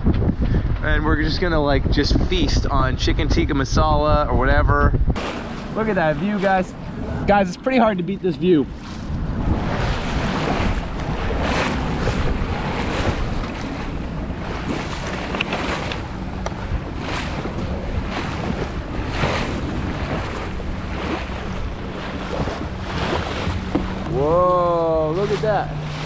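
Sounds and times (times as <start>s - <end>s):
wind buffeting microphone: 0.0s - 26.0s
water washing along hull: 5.0s - 26.0s.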